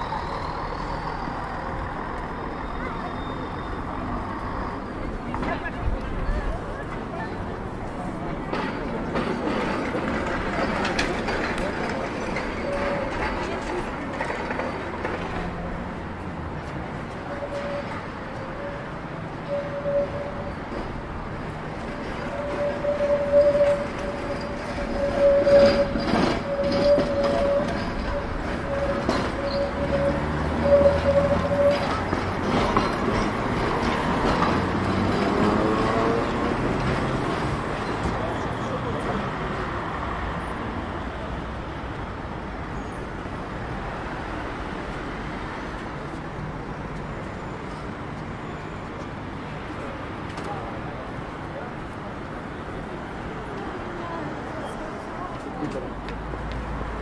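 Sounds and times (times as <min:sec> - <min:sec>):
city traffic noise: 0:00.0 - 0:57.0
tram running on rails: 0:00.0 - 0:57.0.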